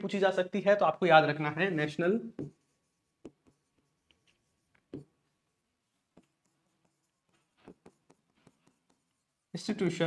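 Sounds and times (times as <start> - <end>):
stylus tapping on screen: 2.3 - 5.4, 6.1 - 9.4.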